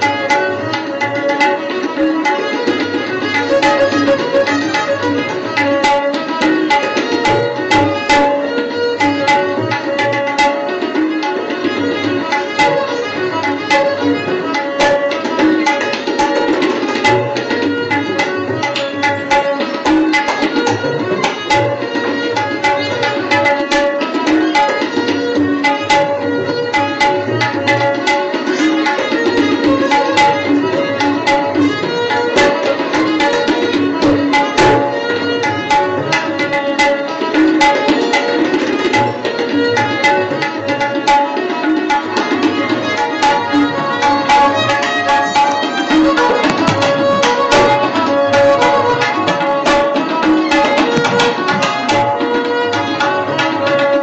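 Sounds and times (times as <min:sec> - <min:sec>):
hand drum rhythm: 0:00.0 - 0:54.0
sustained melodic tones: 0:03.4 - 0:05.5.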